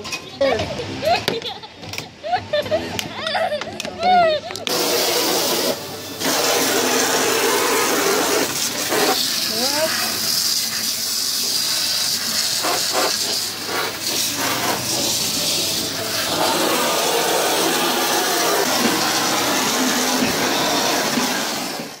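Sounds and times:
water jet spraying target board: 4.7 - 22.0.

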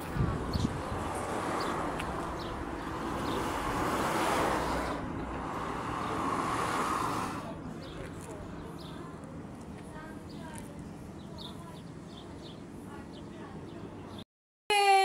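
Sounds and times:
cars passing on a highway: 0.0 - 10.3.

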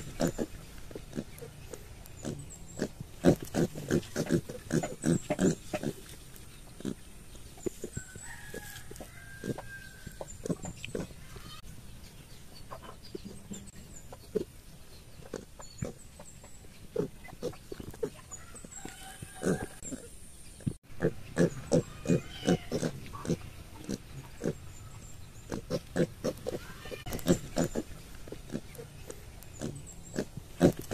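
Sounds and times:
piglets grunting: 0.0 - 6.1, 9.3 - 11.6, 16.9 - 20.2, 21.0 - 24.7, 25.4 - 30.9
chickens calling: 0.0 - 30.9.

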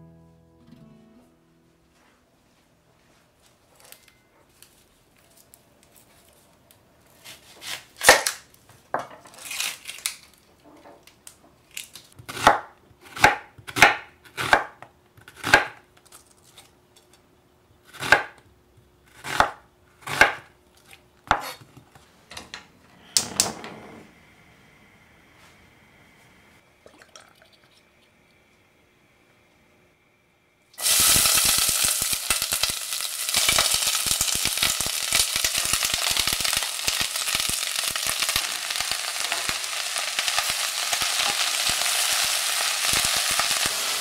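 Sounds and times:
gas burner hissing: 30.7 - 44.0.

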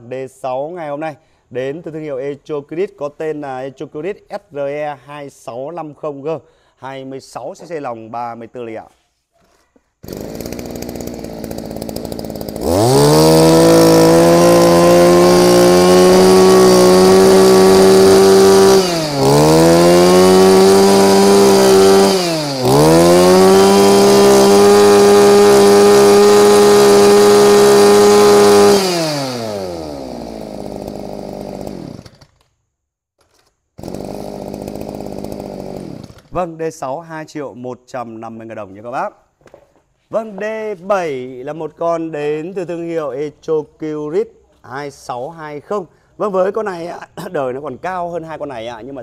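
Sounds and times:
brush cutter engine revving: 10.0 - 32.5, 33.3 - 36.4.

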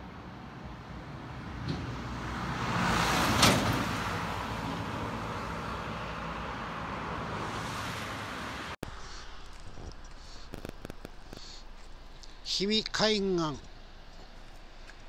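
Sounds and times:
truck passing by: 0.0 - 8.8.

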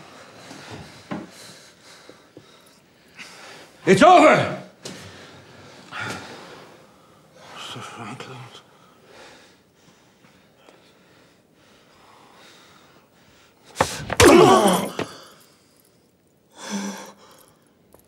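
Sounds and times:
man crying out gasping: 14.2 - 15.2.

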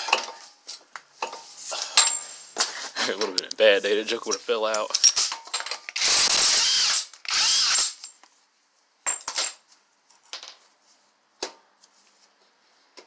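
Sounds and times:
cordless power tool burst: 6.0 - 8.0.

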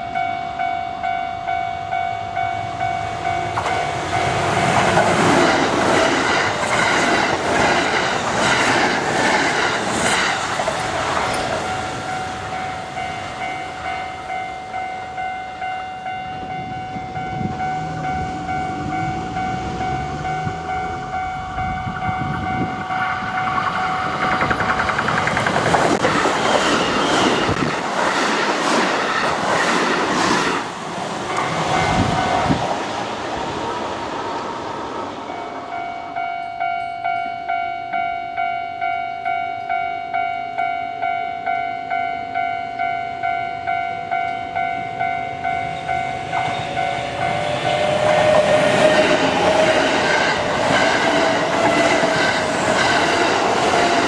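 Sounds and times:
level crossing warning bell: 0.0 - 8.1, 10.8 - 25.3, 31.3 - 32.7, 35.2 - 54.0
train wheels rattling over rail joints: 3.5 - 12.7, 22.2 - 32.8, 46.3 - 54.0.

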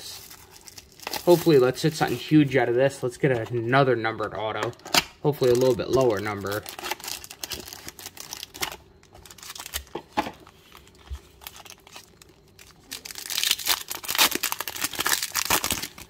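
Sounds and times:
foil wrapper ripping: 0.0 - 2.2, 5.4 - 9.9, 11.3 - 16.0
foil wrapper crinkling: 0.0 - 2.5, 5.3 - 16.0.

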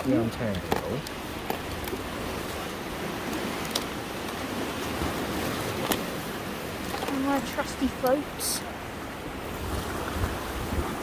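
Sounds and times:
sea surf: 0.0 - 11.0
wind: 0.0 - 11.0.

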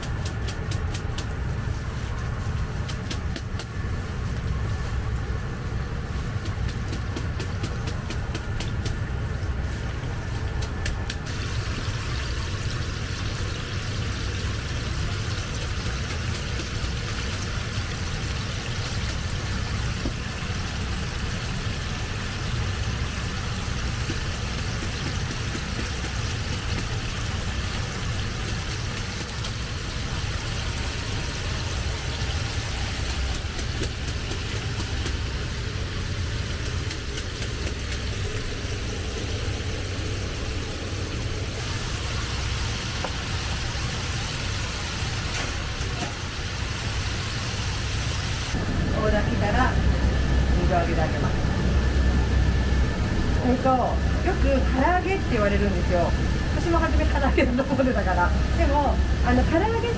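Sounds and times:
oil sizzling and bubbling: 0.0 - 59.9
low rumble: 37.8 - 59.9.

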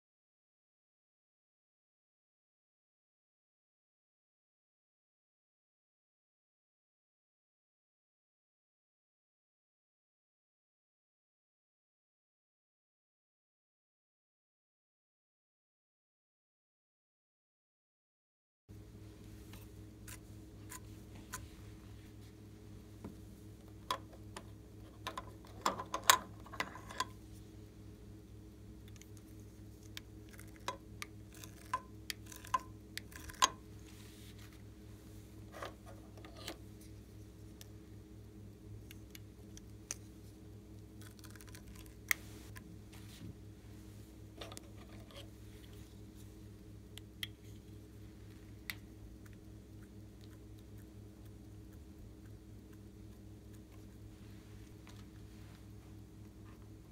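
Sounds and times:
faint steady hum: 18.7 - 56.9.

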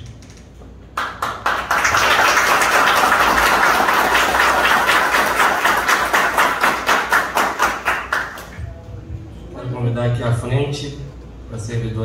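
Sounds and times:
crowd applauding: 1.0 - 8.7.

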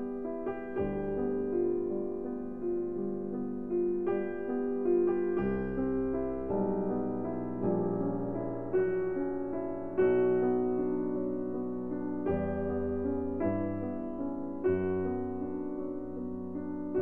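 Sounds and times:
slow piano chords ringing: 0.0 - 17.0.

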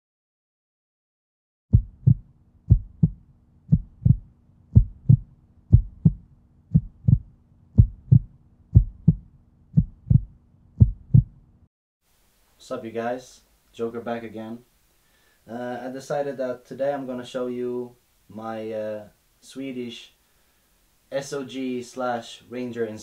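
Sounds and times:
heartbeat thumps: 1.7 - 11.4.

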